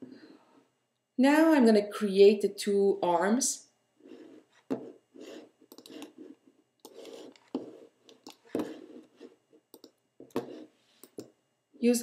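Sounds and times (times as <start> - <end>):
computer mouse clicking: 5.7 - 6.1, 9.7 - 10.0, 11.0 - 11.3.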